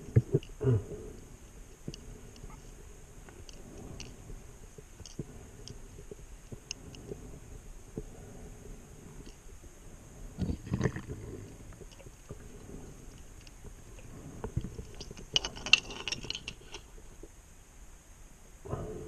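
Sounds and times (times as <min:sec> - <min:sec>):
crackling bubble clicks: 0:00.0 - 0:02.6, 0:10.4 - 0:17.4
low bubbling rumble of exhaled air: 0:00.0 - 0:15.4.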